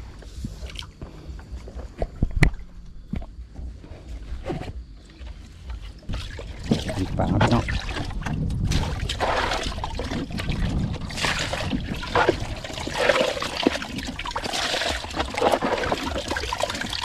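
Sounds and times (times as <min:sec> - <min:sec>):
water splashing and trickling: 0:05.5 - 0:17.0.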